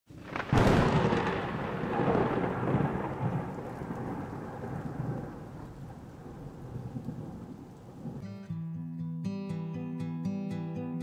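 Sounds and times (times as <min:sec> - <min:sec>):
thunder boom and rumble: 0:00.1 - 0:08.2.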